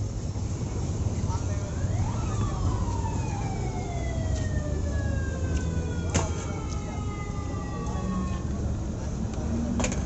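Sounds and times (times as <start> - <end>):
street traffic rumble: 0.0 - 10.0
siren sliding down in pitch: 1.8 - 8.5.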